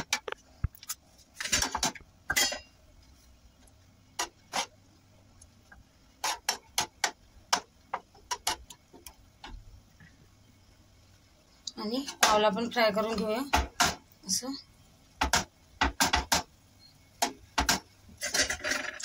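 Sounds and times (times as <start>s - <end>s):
knife and spatula tapping metal pan: 6.2s - 8.8s.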